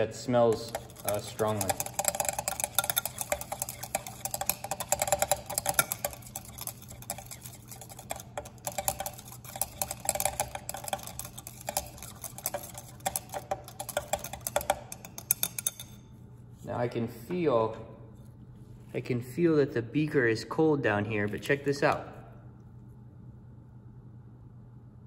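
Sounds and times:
slurry stirred in glass beaker: 0.0 - 16.7
low room hum: 0.0 - 25.0.

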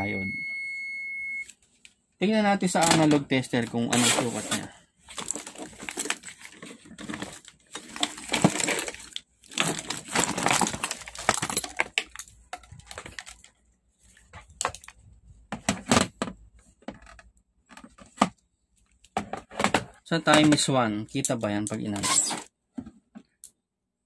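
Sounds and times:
rustling and scraping handling noise: 2.8 - 20.7.

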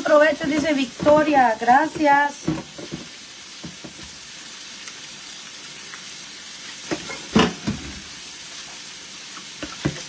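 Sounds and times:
meat sizzling on a griddle: 0.0 - 10.0
utensil knocks: 0.4 - 4.1.

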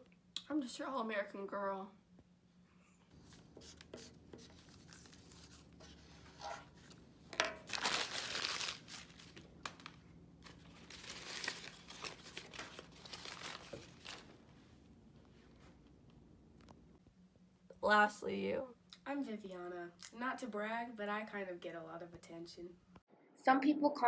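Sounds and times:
paper crumpling and tearing: 4.4 - 7.0, 7.6 - 14.3.

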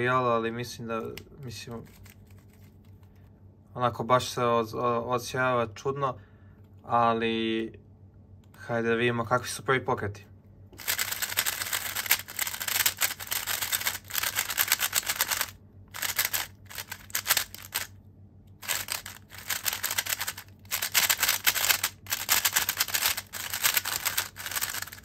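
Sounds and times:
puzzle cube layers clicking: 10.8 - 17.9, 18.6 - 25.0.

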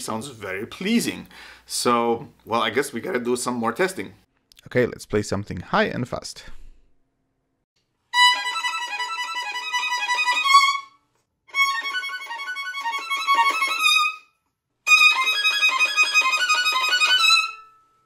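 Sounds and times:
solo violin playing: 8.1 - 17.8.

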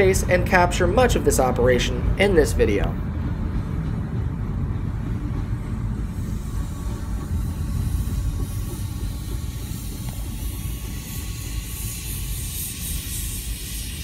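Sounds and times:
freight train running: 0.0 - 14.0
hiss: 6.0 - 14.0.

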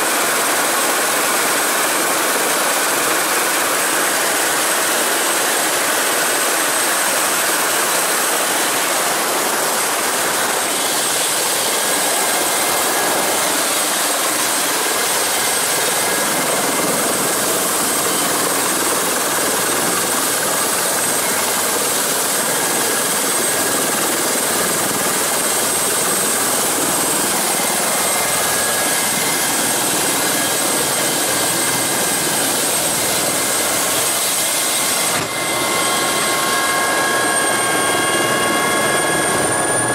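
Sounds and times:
helicopter engine and rotor: 0.0 - 39.9
high whine: 8.5 - 39.9.

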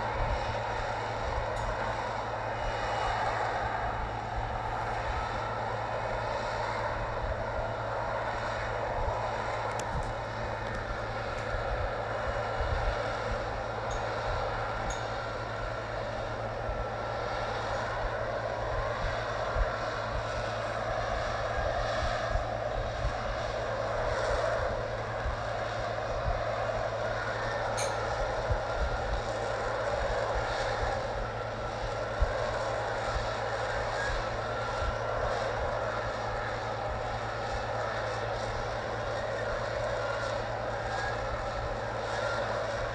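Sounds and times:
jet engine roar: 0.0 - 42.9.

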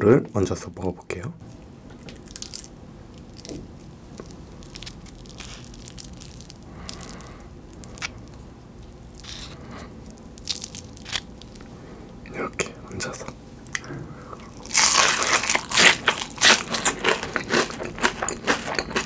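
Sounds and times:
hash brown crackling: 1.5 - 12.0, 14.5 - 18.9.

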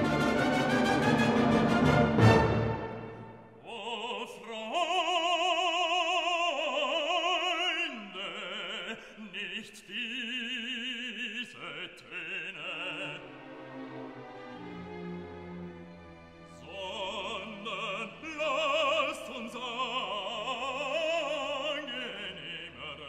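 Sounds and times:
operatic solo voice singing: 3.6 - 13.6, 16.5 - 23.0.

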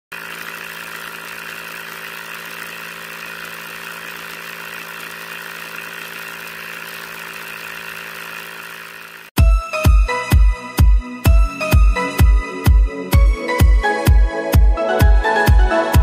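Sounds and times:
water pump motor humming: 0.1 - 9.4.

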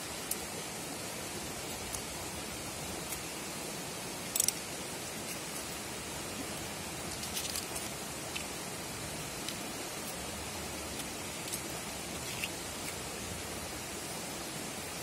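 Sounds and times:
steady rushing hiss: 0.0 - 15.0
onion layers crackling: 4.1 - 13.8.

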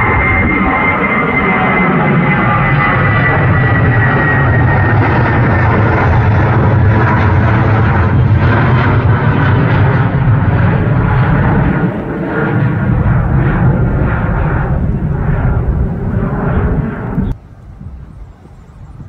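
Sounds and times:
jet engines rumbling overhead: 0.0 - 19.0.

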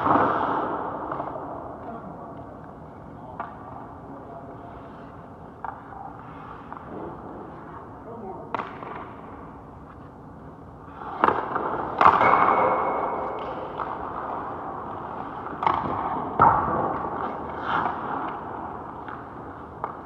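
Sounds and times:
hockey stick and puck cracks: 8.5 - 9.2, 11.0 - 20.0
skate blades scraping ice: 16.9 - 19.3.

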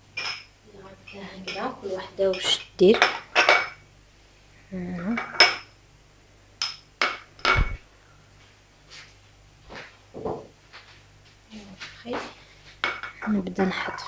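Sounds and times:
glass cups clinking on countertop: 5.2 - 5.7, 12.8 - 14.0.

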